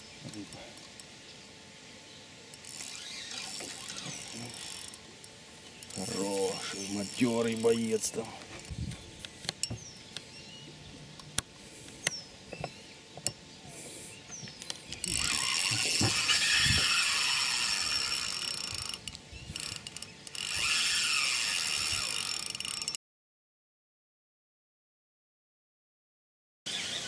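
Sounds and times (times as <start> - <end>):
fishing reel ratcheting: 2.5 - 8.7, 14.6 - 23.0.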